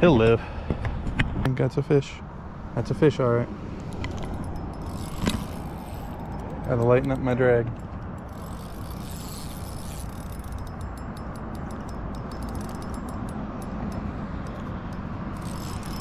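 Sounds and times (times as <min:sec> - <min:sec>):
steady background noise: 0:00.0 - 0:16.0
fishing reel clicking: 0:03.8 - 0:16.0.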